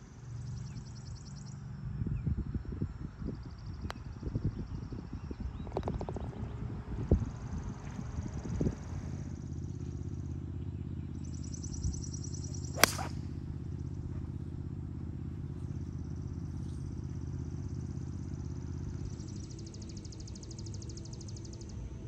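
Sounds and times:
golf club striking ball: 0:12.8 - 0:13.2.

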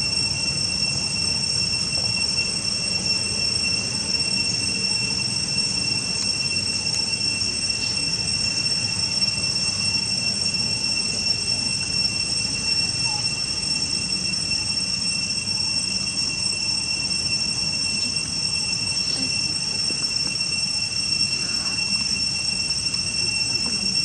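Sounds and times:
insects droning: 0:00.0 - 0:24.0.

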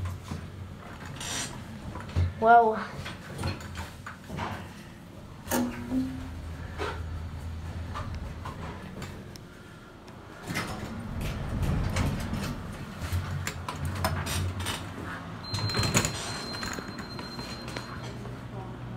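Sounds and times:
elevator doors sliding: 0:00.0 - 0:02.0, 0:04.6 - 0:09.4, 0:10.2 - 0:18.3
low rumble: 0:06.1 - 0:09.5, 0:10.7 - 0:13.3.

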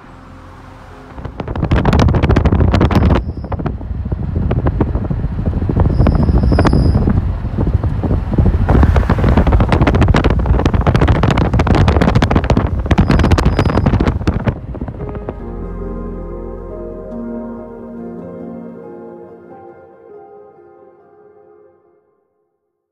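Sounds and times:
soft ambient music: 0:00.0 - 0:01.9, 0:14.7 - 0:22.5
wind buffeting microphone: 0:01.1 - 0:15.5.

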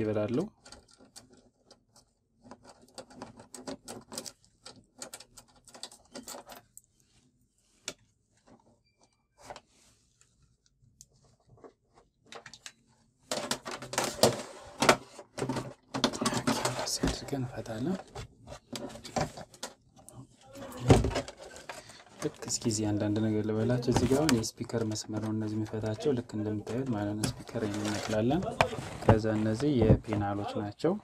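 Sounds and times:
plastic cover clicking and rustling: 0:12.3 - 0:30.3.

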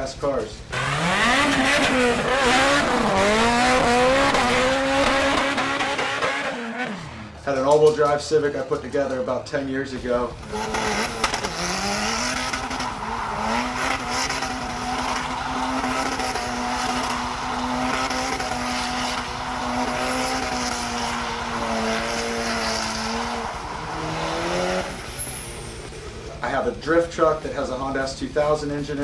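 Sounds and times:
car engine at high revs: 0:00.6 - 0:07.4, 0:10.3 - 0:26.4
tyres squealing: 0:10.4 - 0:25.8.

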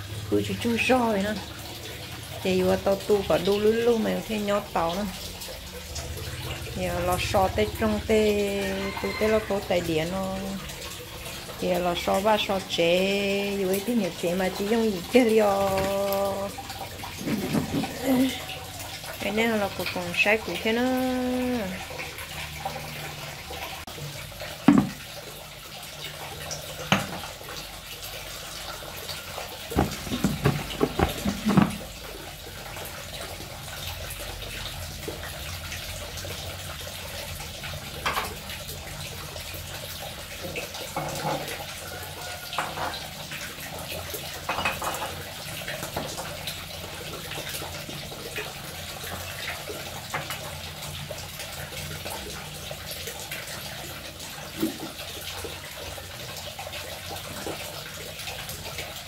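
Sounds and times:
tap running into a sink: 0:15.5 - 0:18.3, 0:24.6 - 0:25.2, 0:26.8 - 0:27.4, 0:29.7 - 0:32.1, 0:38.0 - 0:38.5, 0:40.5 - 0:43.0
containers and bottles knocking: 0:17.2 - 0:18.3, 0:24.6 - 0:25.0, 0:26.9 - 0:27.3, 0:29.7 - 0:31.9.

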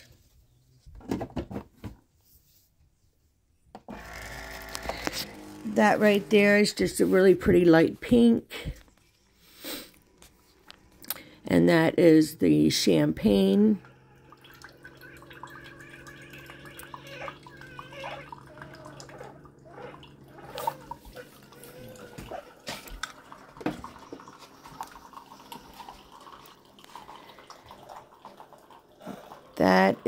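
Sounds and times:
coffee maker humming: 0:03.8 - 0:30.0
small clicks: 0:04.2 - 0:05.4
liquid dripping and trickling: 0:13.3 - 0:29.9.

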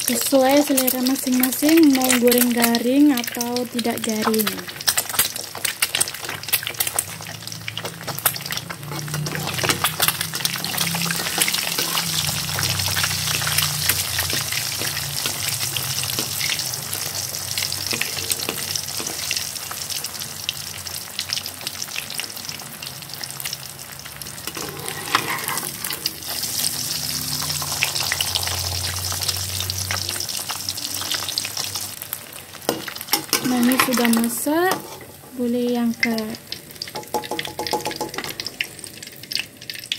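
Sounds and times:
egg sizzling in oil: 0:00.0 - 0:39.9
spatula moving in pan: 0:04.1 - 0:19.6, 0:24.4 - 0:31.7, 0:32.6 - 0:36.2.

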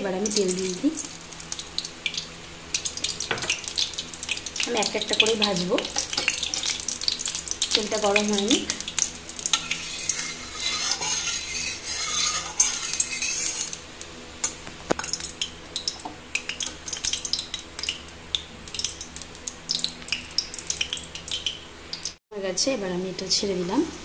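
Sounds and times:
oil crackling: 0:01.0 - 0:22.2
metal spatula scraping pan: 0:09.4 - 0:13.8.

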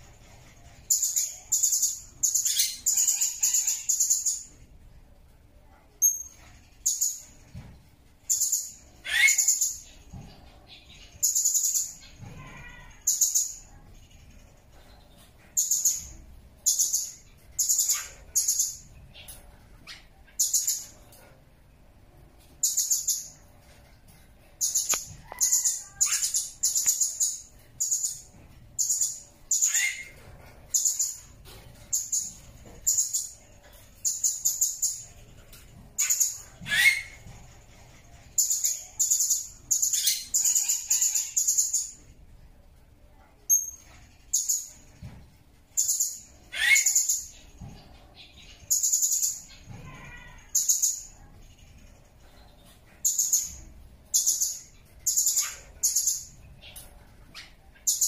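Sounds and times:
parrot high-pitched chirps: 0:00.4 - 0:04.6, 0:08.2 - 0:10.0, 0:15.5 - 0:21.2, 0:24.6 - 0:42.0, 0:45.7 - 0:47.6, 0:48.2 - 0:51.4, 0:52.6 - 0:58.0.

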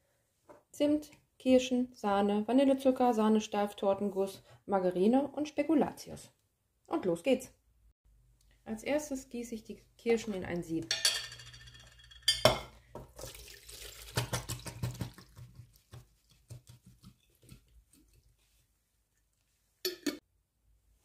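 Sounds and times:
glass jar clinking: 0:10.9 - 0:12.8, 0:19.8 - 0:20.2
liquid pouring and splashing: 0:13.0 - 0:18.6
liquid dripping: 0:13.1 - 0:16.0.

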